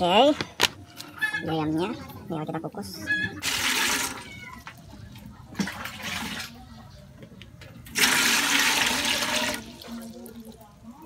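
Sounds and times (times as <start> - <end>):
water pouring into metal pot: 3.4 - 4.3, 7.9 - 10.6.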